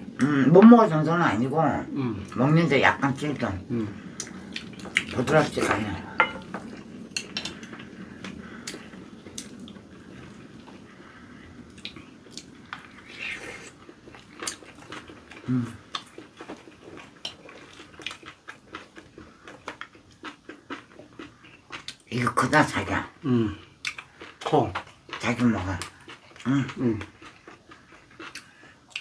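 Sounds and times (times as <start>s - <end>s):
soft chewing: 3.3s - 29.0s
utensils tapping ceramic bowls: 6.1s - 6.6s.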